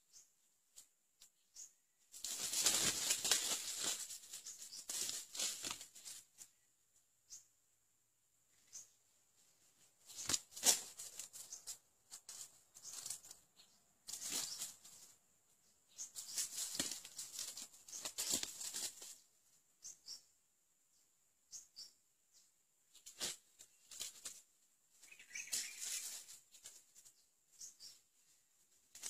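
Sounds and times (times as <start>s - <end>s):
rustling and scratching in dry leaves: 2.1s - 6.6s, 9.4s - 15.2s, 15.9s - 19.3s, 22.9s - 29.0s.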